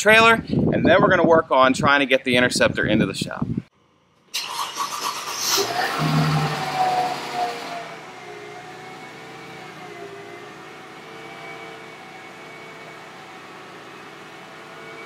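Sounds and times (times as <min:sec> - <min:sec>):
car engine idling: 0:04.6 - 0:15.0.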